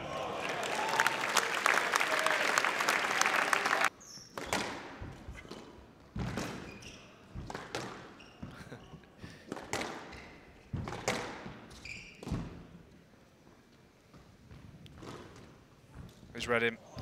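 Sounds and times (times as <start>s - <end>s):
crowd applauding: 0.0s - 3.9s
squash ball strikes: 10.7s - 11.6s.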